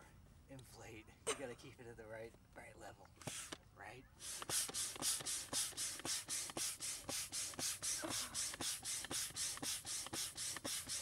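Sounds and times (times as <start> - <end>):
hand pump hissing air: 3.2 - 3.6, 4.2 - 11.0.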